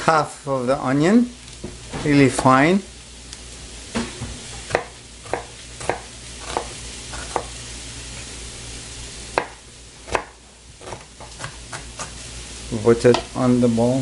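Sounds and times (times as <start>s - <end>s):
food sizzling in a pan: 0.0s - 14.0s
knife chopping on cutting board: 4.0s - 7.5s, 9.4s - 12.2s.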